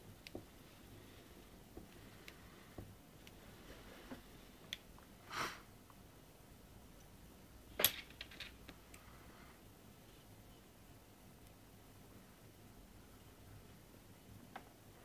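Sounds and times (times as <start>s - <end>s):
soft rustle: 0.5s - 4.6s.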